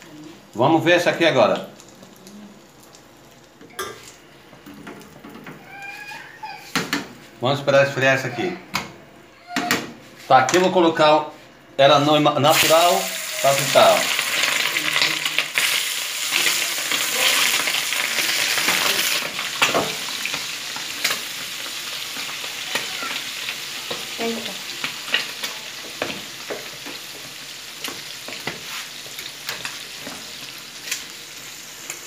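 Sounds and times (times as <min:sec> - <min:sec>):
meat sizzling in hot oil: 0:12.5 - 0:32.0.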